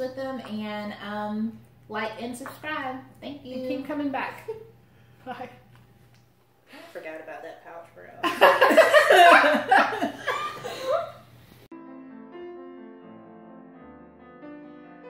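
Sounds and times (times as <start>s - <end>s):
women laughing loudly: 8.2s - 11.2s
soft piano music: 11.7s - 15.0s.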